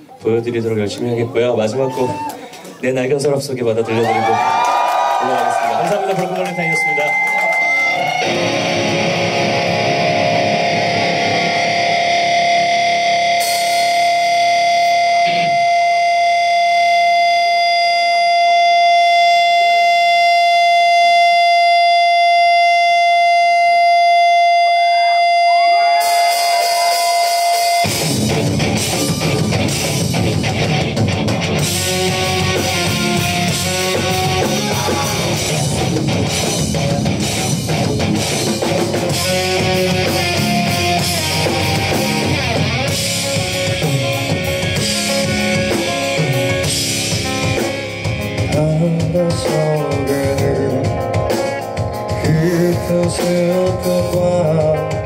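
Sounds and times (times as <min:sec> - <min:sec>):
electric guitars: 0:03.9 - 0:55.0
drum kit: 0:04.0 - 0:21.0, 0:24.9 - 0:55.0
steady held tone: 0:06.3 - 0:48.4
electric bass: 0:07.1 - 0:55.0.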